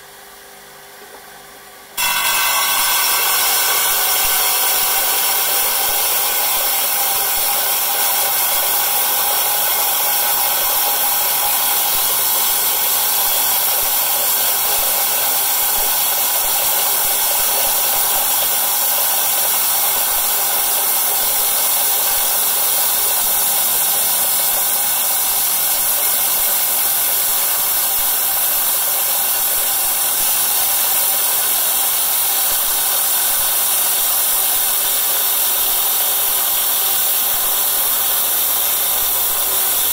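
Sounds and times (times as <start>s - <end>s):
stone-cutting saw grinding: 2.0s - 39.9s.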